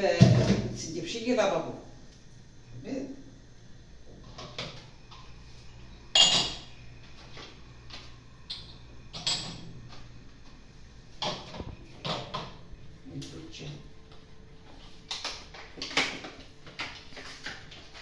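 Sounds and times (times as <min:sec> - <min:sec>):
dishes and utensils clinking: 0:06.1 - 0:06.7, 0:08.5 - 0:09.8
kitchenware clattering: 0:06.1 - 0:06.7, 0:08.5 - 0:09.8, 0:11.2 - 0:12.6.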